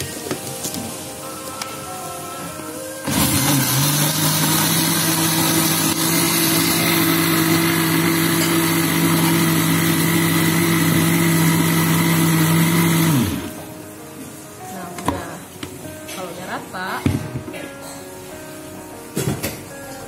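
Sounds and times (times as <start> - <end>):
blender running: 3.0 - 13.7.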